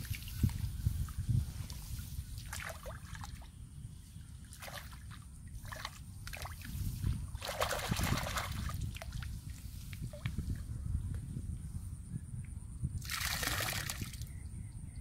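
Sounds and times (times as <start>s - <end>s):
hands splashing in muddy water: 7.4s - 9.2s.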